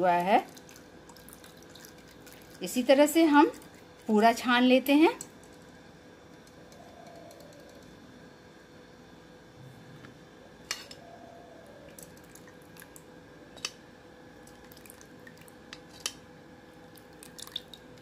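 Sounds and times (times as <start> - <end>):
oil trickling through cloth: 0.2 - 4.1, 16.9 - 17.9.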